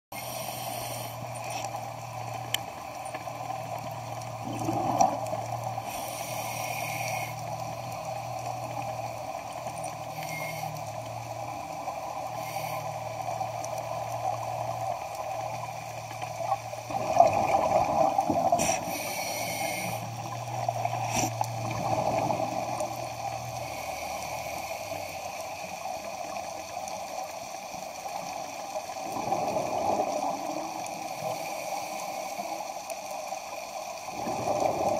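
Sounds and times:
short hissing inhalations: 0.2s - 1.7s, 5.8s - 7.5s, 18.5s - 20.2s, 21.0s - 21.4s
bubbling exhalation underwater: 4.4s - 5.3s, 16.9s - 18.8s.

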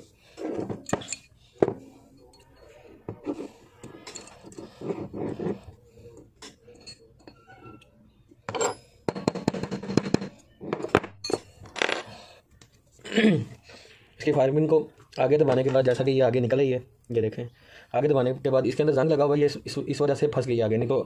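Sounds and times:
metal scraping on wood: 3.1s - 5.8s.

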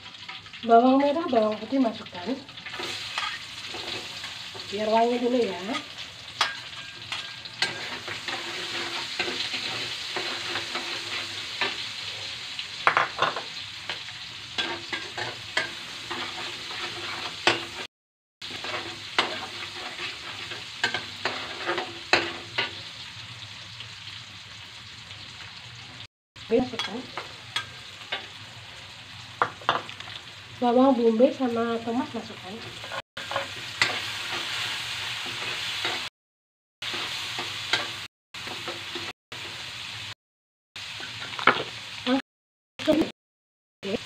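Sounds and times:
shallots sizzling in hot oil: 0.0s - 36.1s, 36.8s - 40.2s, 40.8s - 42.2s
spatula scraping against pan: 5.7s - 12.7s, 13.3s - 22.8s, 32.6s - 36.1s.

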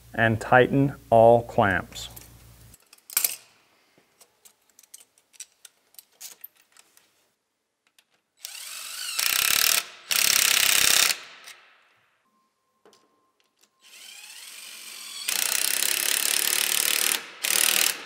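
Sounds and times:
cordless driver tightening screw: 8.4s - 11.2s, 13.9s - 18.0s.

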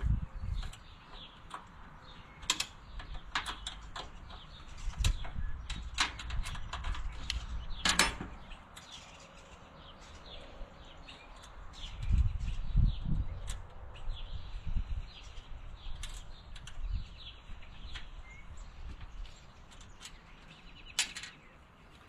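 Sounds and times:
birds chirping: 0.0s - 22.0s
metal clicks and knocks of hand tools: 2.4s - 9.0s, 20.9s - 21.4s.

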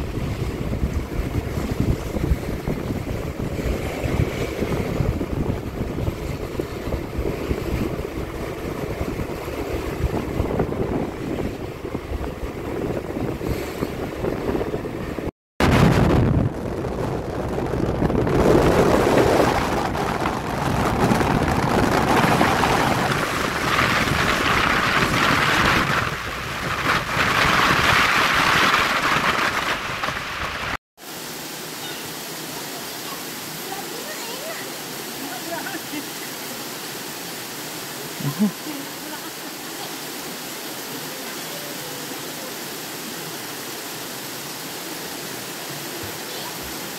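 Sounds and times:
wind buffeting microphone: 0.0s - 30.8s
road noise: 16.5s - 46.9s.

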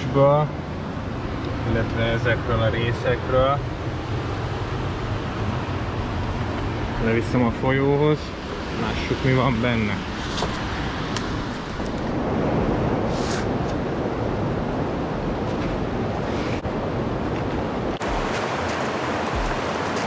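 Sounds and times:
river water rushing: 16.2s - 20.0s.

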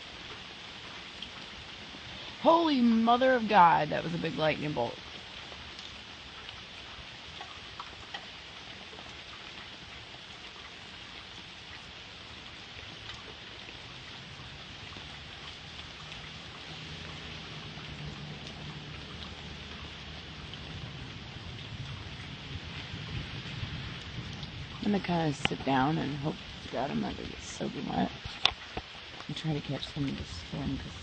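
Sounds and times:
rain hissing: 0.0s - 31.0s
raindrop ticks: 0.0s - 31.0s
low thunder rumble: 14.0s - 28.2s.

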